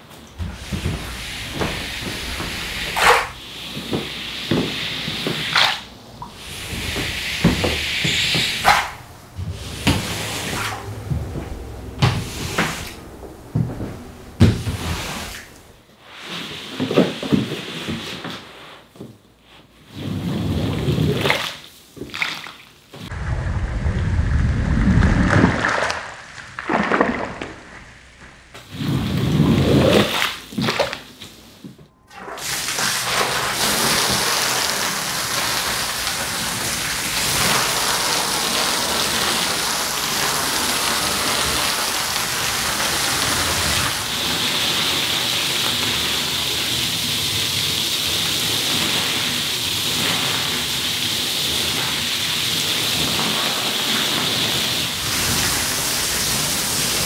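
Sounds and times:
hose spraying water on rug: 0:00.4 - 0:10.9, 0:14.4 - 0:18.7, 0:28.7 - 0:30.3, 0:32.3 - 0:57.0
squeegee scraping wet rug: 0:00.4 - 0:13.8, 0:14.4 - 0:18.8.

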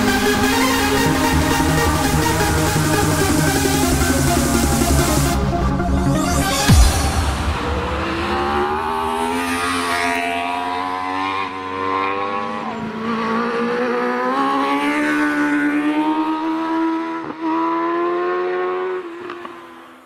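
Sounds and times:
motorcycle engine revving high: 0:06.6 - 0:19.5
loud thump: 0:06.7 - 0:10.7.

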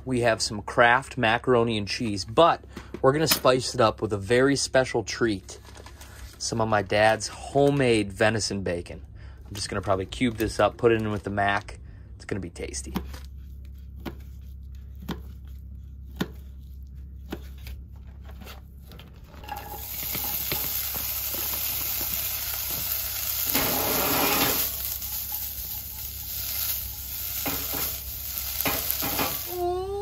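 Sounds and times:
bacon sizzling in a pan: 0:19.5 - 0:29.8
bright hiss from saucepan: 0:19.5 - 0:29.8.

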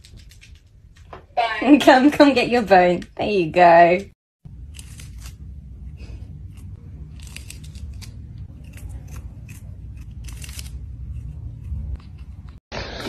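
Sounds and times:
steady low rumble: 0:04.4 - 0:12.6
kitten crunching dried fish: 0:04.6 - 0:12.4.

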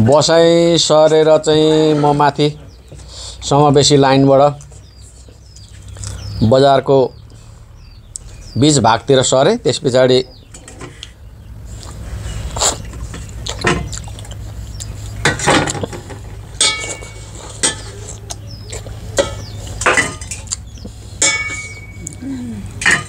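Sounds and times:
metal plates clinking: 0:00.9 - 0:02.8, 0:15.2 - 0:18.0, 0:19.2 - 0:20.6, 0:21.2 - 0:23.0
mouth smacks while eating: 0:11.8 - 0:15.0.

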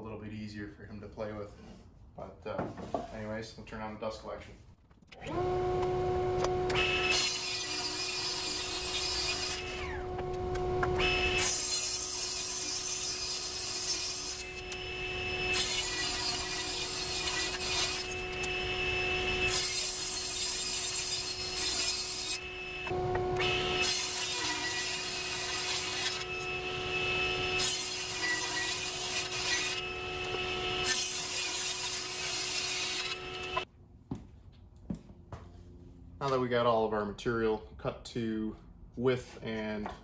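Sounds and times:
saw motor running hum: 0:05.2 - 0:33.6
table saw ripping wood: 0:05.2 - 0:33.6.

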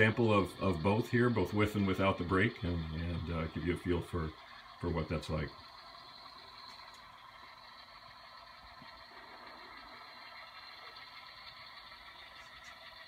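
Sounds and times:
model diesel engine sound: 0:00.0 - 0:13.0.

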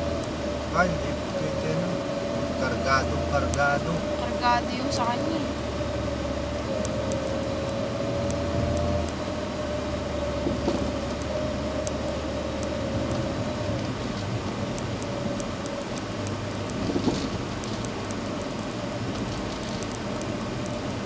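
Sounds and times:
car engine and road noise: 0:00.0 - 0:21.0
faint ticks: 0:11.1 - 0:21.0.

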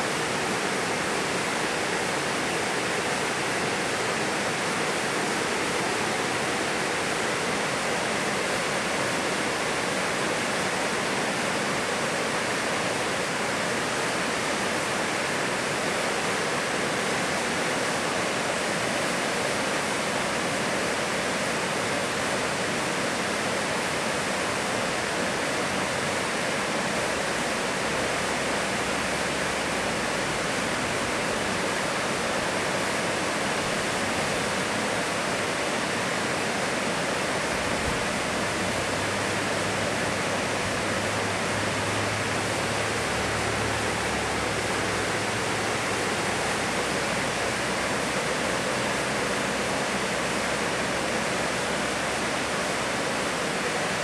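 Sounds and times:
waterfall rushing over rock: 0:00.0 - 0:54.0.

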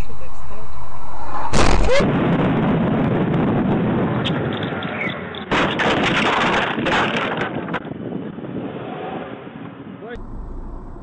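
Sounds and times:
vehicle road rumble: 0:00.0 - 0:11.0
loud crash: 0:00.7 - 0:08.7
knocks and rattles: 0:05.5 - 0:07.9.

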